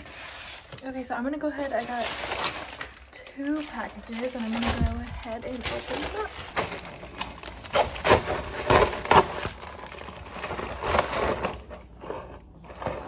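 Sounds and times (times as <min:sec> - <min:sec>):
package crinkling and rustling: 0:00.0 - 0:13.0
padded mailer tearing: 0:01.9 - 0:11.7.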